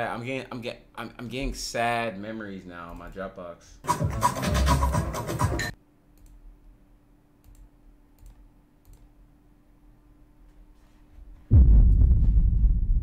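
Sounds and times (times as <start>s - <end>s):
loud low rumbling: 11.5s - 13.0s.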